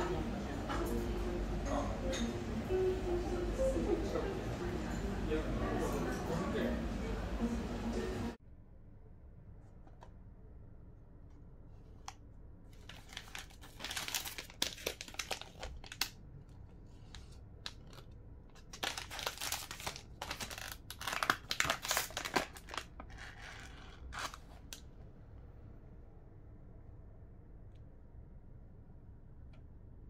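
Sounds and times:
plastic snack packets crinkling: 12.8 - 16.2, 17.1 - 24.8.

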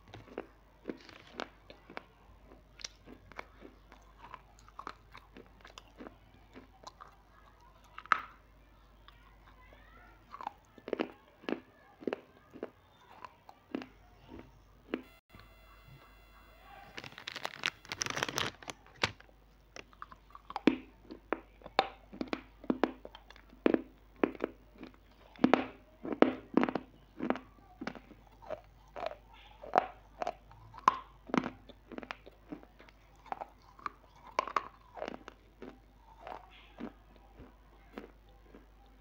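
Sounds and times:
crunchy snack being chewed: 0.0 - 8.4, 9.0 - 39.0
snack packet rustling: 0.1 - 2.0, 15.4 - 20.8.

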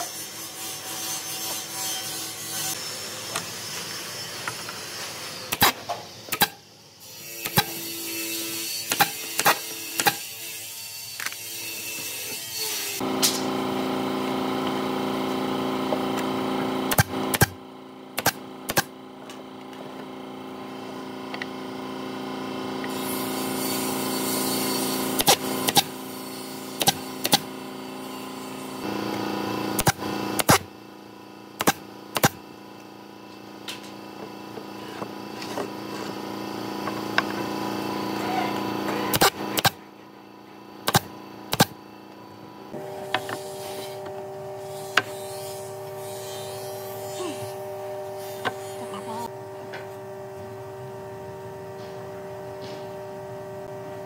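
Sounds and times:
nail gun firing into wood: 5.5 - 6.6, 8.9 - 10.2, 16.9 - 17.6, 18.2 - 18.9, 29.8 - 30.7, 31.6 - 32.4, 39.1 - 39.8, 40.8 - 41.8.

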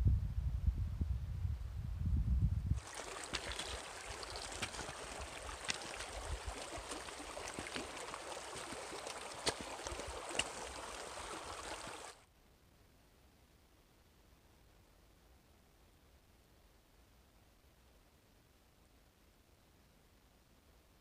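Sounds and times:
creek babbling over rocks: 2.8 - 12.2.

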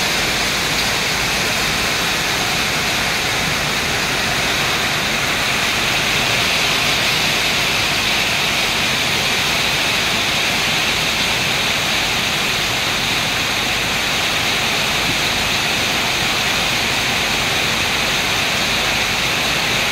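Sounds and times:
heavy rain pouring: 0.0 - 19.9.

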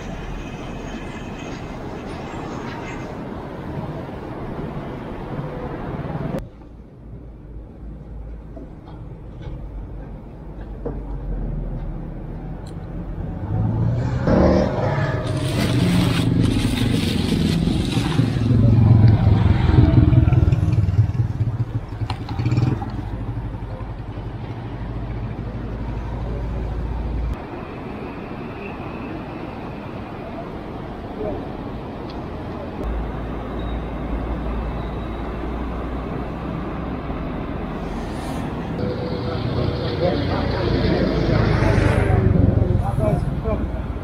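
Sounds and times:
vehicle passing by: 13.1 - 27.4, 35.5 - 44.0.

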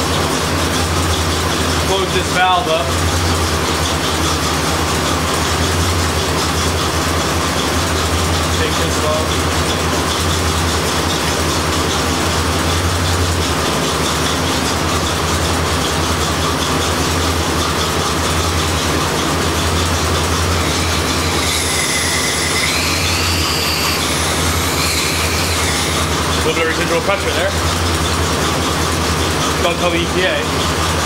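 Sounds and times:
car engine idling: 0.0 - 31.0
high gliding squeal: 20.5 - 26.2.

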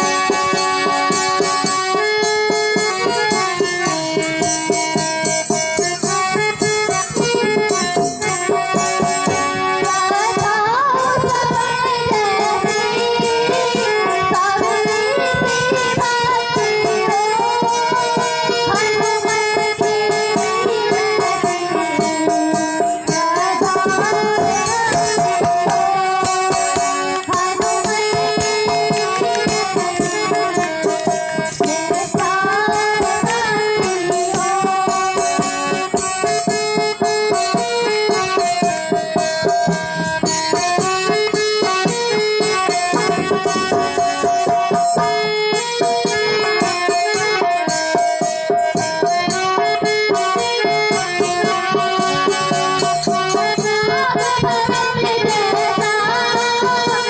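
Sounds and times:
girls singing into microphones: 0.0 - 57.0
hand drum steady beat: 0.0 - 57.0
harmonium sustained notes: 0.0 - 57.0.

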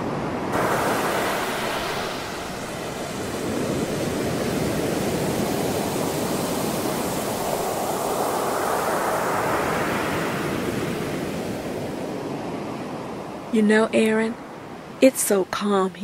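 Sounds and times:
waves breaking on a beach: 0.0 - 15.6.

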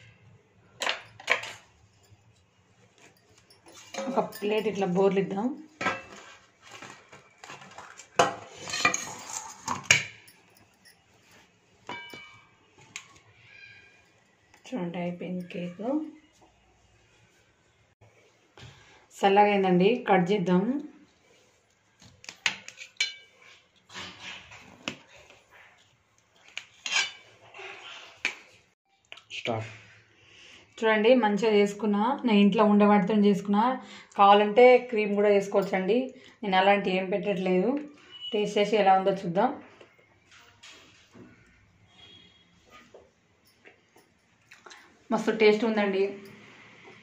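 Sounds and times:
metal plate and tin clattering: 3.4 - 5.2, 5.8 - 10.8, 11.8 - 12.5
knife scraping: 26.5 - 28.2.

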